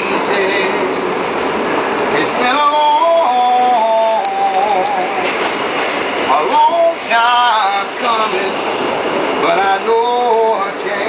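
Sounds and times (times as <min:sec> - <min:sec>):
subway car running: 0:00.0 - 0:11.0
man singing long notes: 0:02.1 - 0:05.4, 0:06.3 - 0:08.6, 0:09.4 - 0:11.0.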